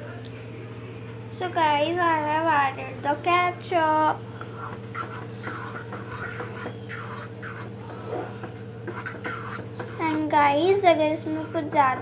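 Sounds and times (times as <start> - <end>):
utensil stirring noodles in pan: 4.5 - 12.0.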